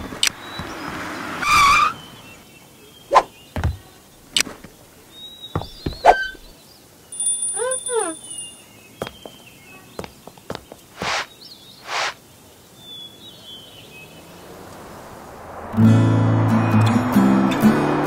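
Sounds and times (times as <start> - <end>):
warbling chirp: 7.2 - 8.6.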